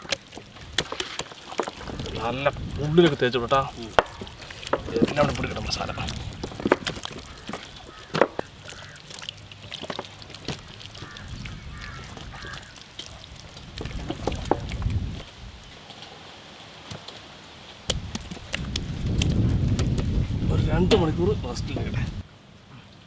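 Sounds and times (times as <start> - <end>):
hands squelching marinade into chicken: 0.0 - 15.2, 17.9 - 20.2.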